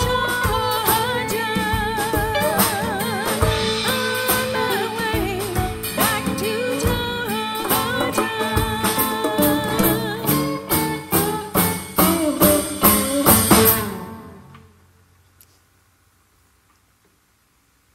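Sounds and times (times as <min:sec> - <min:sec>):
woman singing: 0:00.0 - 0:14.1
rock band playing: 0:00.0 - 0:14.6.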